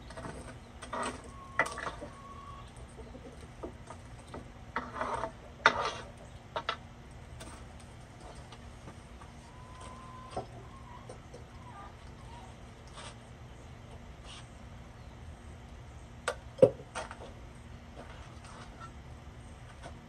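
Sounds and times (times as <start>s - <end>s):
metal tool scraping in oven: 4.8s - 6.2s.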